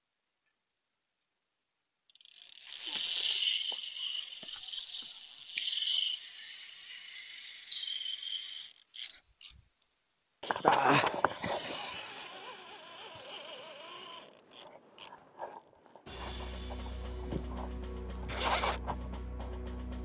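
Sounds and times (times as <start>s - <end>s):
fishing reel drag screaming: 2.1s - 9.5s, 10.6s - 17.0s, 18.3s - 18.8s.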